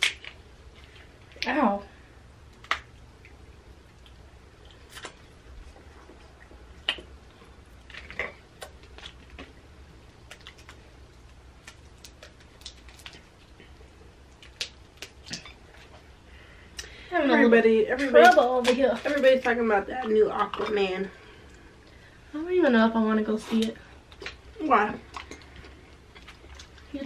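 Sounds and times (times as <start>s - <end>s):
crab shells cracking: 0.0s - 1.5s, 2.5s - 3.3s, 7.8s - 13.6s, 14.3s - 15.9s
faint low hum: 0.0s - 27.0s.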